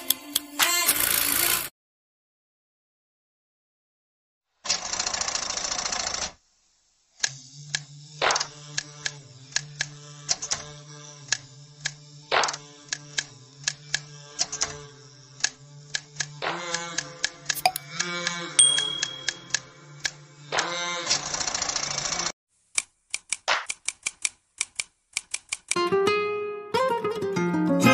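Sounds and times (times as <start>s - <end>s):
clicking percussion: 17.5s - 17.8s, 18.6s - 19.5s.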